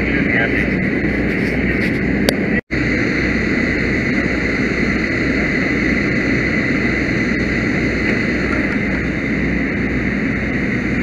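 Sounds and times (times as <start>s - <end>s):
motor running loudly: 0.0s - 11.0s.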